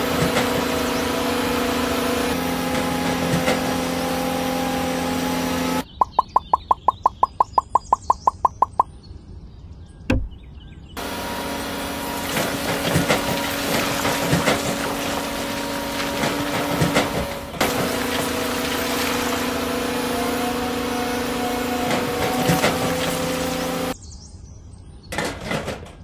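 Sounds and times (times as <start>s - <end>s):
electric gear motors whining: 0.0s - 5.8s, 11.0s - 24.0s
thump: 10.1s - 10.4s
sand scraping: 11.0s - 24.0s.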